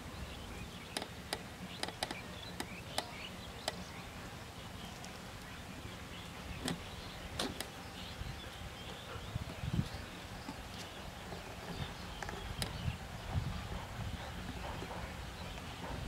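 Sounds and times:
faint outdoor background: 0:00.0 - 0:16.0.

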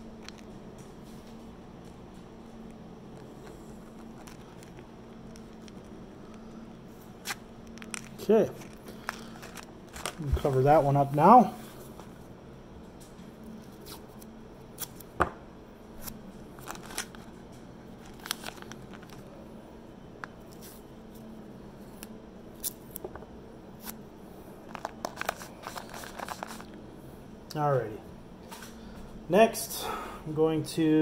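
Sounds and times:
faint steady hum: 0:00.0 - 0:31.0
tape and plastic pouch crinkling: 0:02.6 - 0:11.2, 0:16.0 - 0:19.4, 0:24.6 - 0:26.8.

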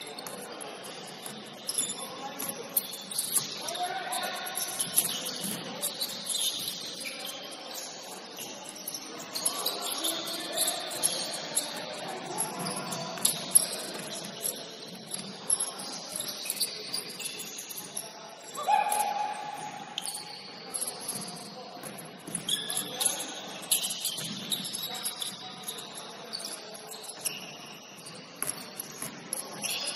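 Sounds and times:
shoes squeaking on gym floor: 0:00.0 - 0:29.9.

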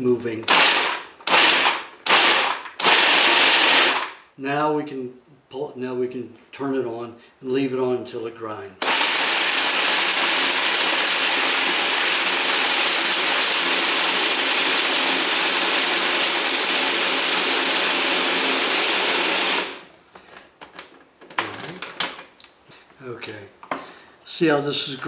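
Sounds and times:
kitchen grinder whirring: 0:00.5 - 0:04.1, 0:08.8 - 0:19.9.

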